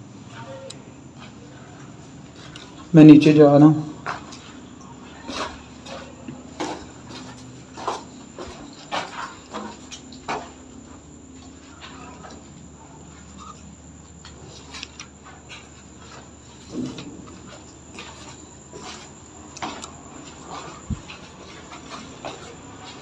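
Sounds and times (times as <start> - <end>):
faint high-pitched tone: 0.3 - 1.0
footsteps on concrete floor: 0.3 - 23.0.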